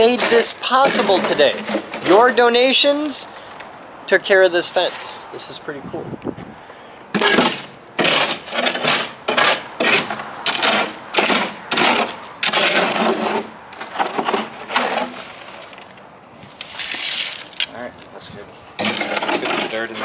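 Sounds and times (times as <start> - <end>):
shovels scraping sandy soil: 0.0 - 3.3, 7.2 - 15.7, 18.8 - 20.0.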